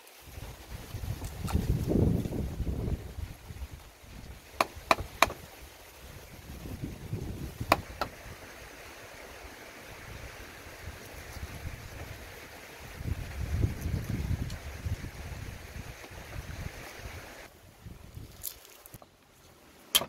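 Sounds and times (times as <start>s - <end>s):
faint outdoor background: 0.0s - 20.0s
wind rumble on microphone: 0.2s - 8.8s, 9.4s - 18.5s
cleaver chopping on wooden board: 4.6s - 5.4s, 7.7s - 8.2s.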